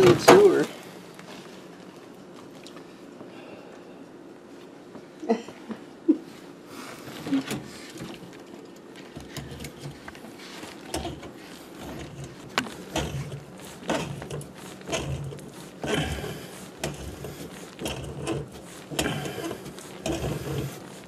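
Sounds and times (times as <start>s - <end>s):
knocks clicks and scrapes: 9.0s - 21.0s.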